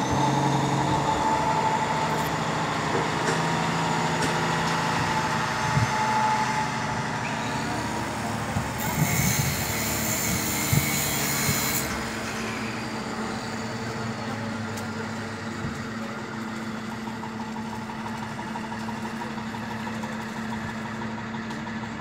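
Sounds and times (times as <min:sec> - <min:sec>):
engine idling: 0:12.6 - 0:22.0.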